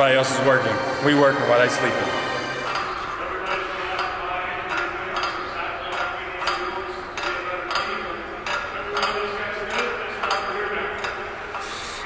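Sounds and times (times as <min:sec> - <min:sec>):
person speaking: 0:00.0 - 0:03.8
background music with steady beat: 0:00.0 - 0:12.0.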